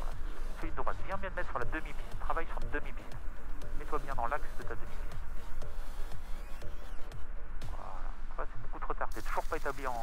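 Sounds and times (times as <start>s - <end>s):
person speaking: 0.6s - 3.2s, 3.8s - 5.2s, 7.7s - 10.0s.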